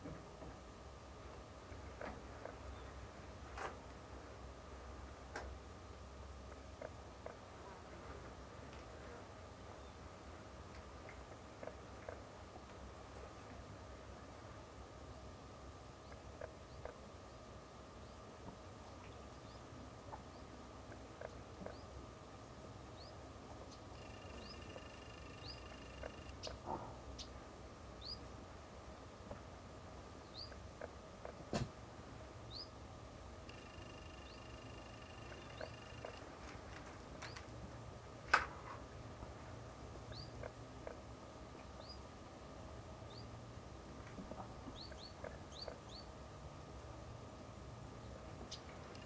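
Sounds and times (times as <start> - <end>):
faint steady hum: 0.0 - 49.0
bird chirping: 19.0 - 22.0, 23.0 - 27.4, 28.0 - 28.3, 30.2 - 31.4, 32.5 - 32.8, 33.5 - 36.2, 40.0 - 41.0, 41.6 - 42.1, 43.0 - 43.4, 44.6 - 46.1, 48.0 - 49.0.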